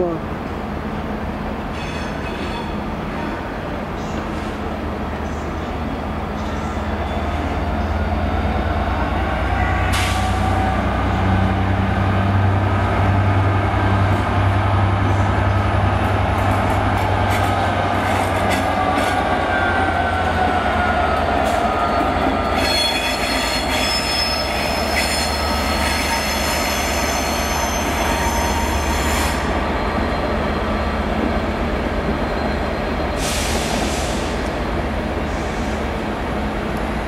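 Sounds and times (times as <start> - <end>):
train wheels squealing: 1.7 - 3.4, 5.3 - 8.7, 18.4 - 34.4.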